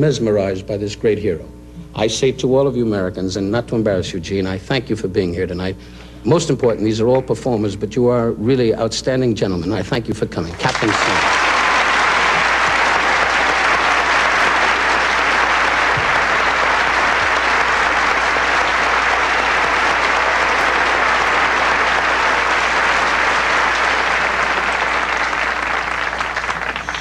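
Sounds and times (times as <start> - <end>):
audience applauding: 10.5 - 27.0.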